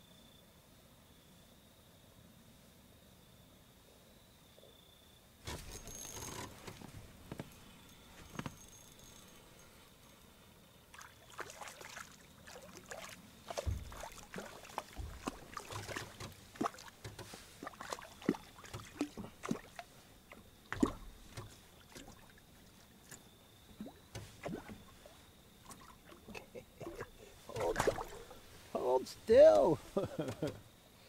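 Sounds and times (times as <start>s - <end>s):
fishing gear clicking and knocking: 5.5s - 9.7s, 13.5s - 22.2s, 25.7s - 28.5s, 29.5s - 30.7s
dull thumps in a boat: 13.5s - 28.6s, 29.3s - 30.7s.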